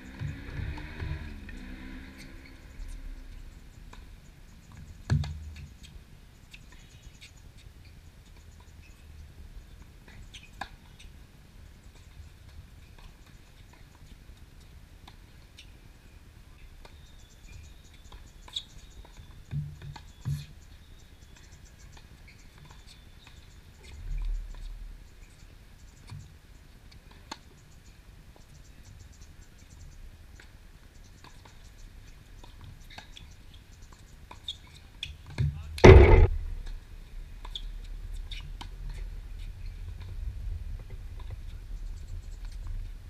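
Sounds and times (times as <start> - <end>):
racket hitting tennis ball: 35.8 - 36.5
low rumble: 35.8 - 36.9.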